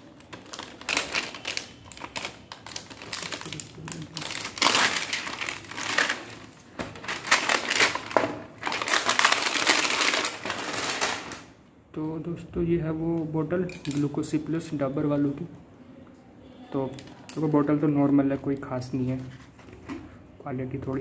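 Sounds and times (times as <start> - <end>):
plastic wrap crinkling: 0.0 - 11.6.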